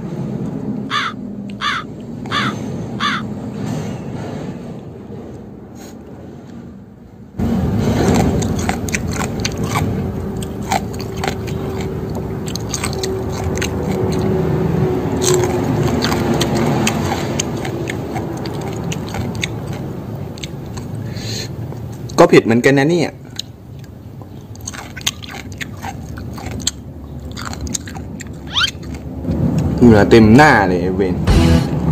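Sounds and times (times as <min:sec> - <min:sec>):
crunchy salad chewing: 0:07.4 - 0:22.2, 0:23.2 - 0:29.8.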